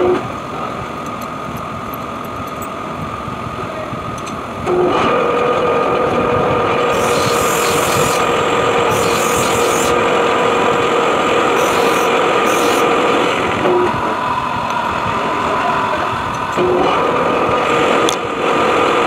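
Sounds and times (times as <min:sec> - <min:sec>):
metal lathe gear whine: 0:06.7 - 0:16.6
short scraping hisses: 0:06.9 - 0:08.3, 0:08.9 - 0:10.0, 0:11.6 - 0:12.9.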